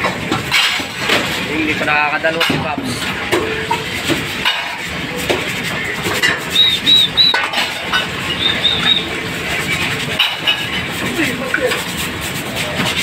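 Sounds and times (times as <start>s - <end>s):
steady background noise: 0.0s - 13.0s
bird chirping: 8.3s - 9.1s.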